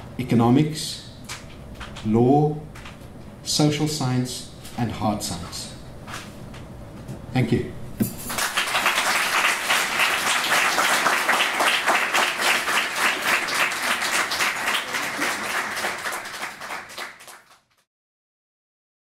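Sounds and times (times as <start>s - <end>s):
audience applauding: 8.3s - 17.8s.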